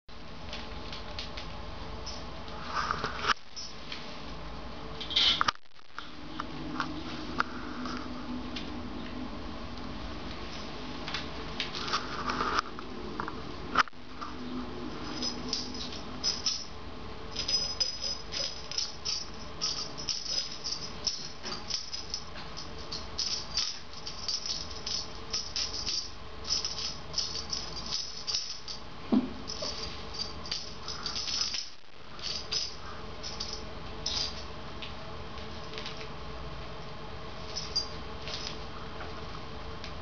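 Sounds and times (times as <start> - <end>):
cat toy rattle jingling: 15.0 - 16.7, 17.3 - 28.8, 29.5 - 34.4.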